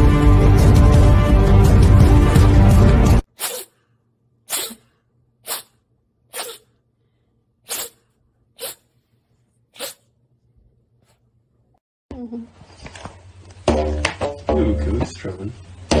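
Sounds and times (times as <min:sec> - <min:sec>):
music: 0:00.0 - 0:03.2, 0:13.5 - 0:16.0
cat sneezing: 0:03.3 - 0:03.8, 0:04.5 - 0:06.8, 0:07.6 - 0:08.9, 0:09.7 - 0:10.1.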